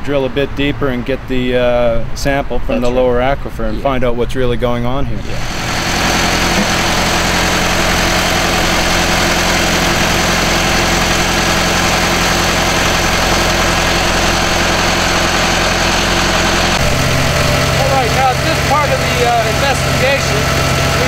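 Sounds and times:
drilling rig engine running: 0:05.2 - 0:21.0.

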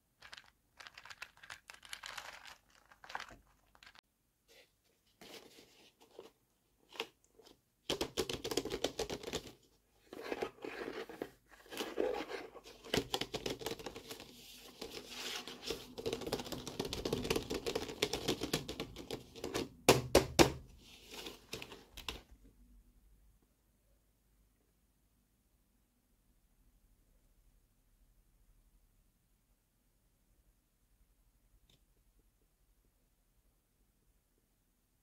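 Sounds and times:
plastic packaging crinkling: 0:00.2 - 0:04.0.

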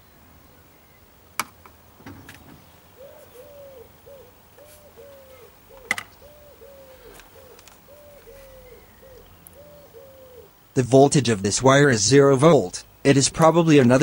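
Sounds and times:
dove cooing: 0:02.2 - 0:10.6.

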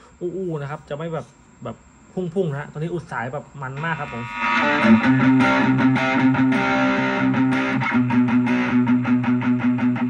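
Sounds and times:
overdriven electric guitar palm-muted: 0:03.8 - 0:10.0.

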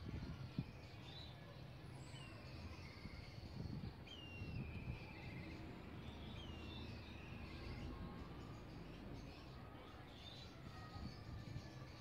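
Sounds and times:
bird whistled calls: 0:04.1 - 0:07.7.

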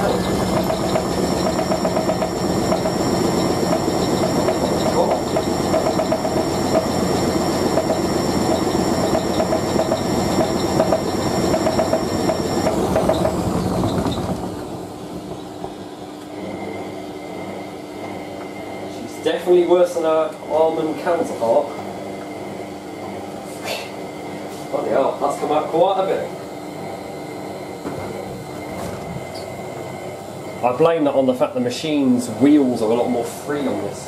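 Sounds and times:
washing machine drum knocking: 0:00.0 - 0:15.9
washing machine rattling: 0:00.0 - 0:16.0
motor high whine: 0:00.0 - 0:23.3.

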